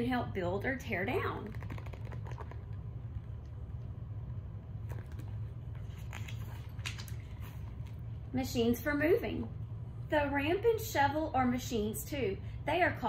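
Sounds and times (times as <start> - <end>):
steady low hum: 0.0 - 13.0
book pages turning: 4.8 - 8.0.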